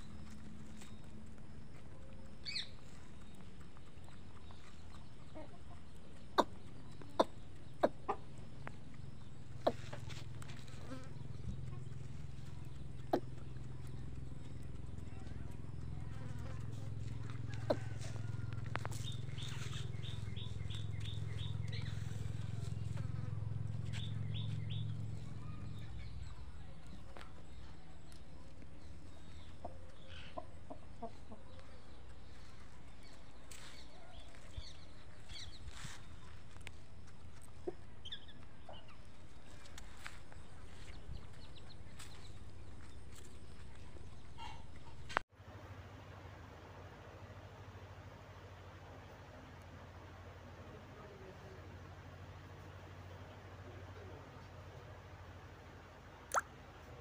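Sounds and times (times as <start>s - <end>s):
chickens clucking: 1.8s - 32.8s.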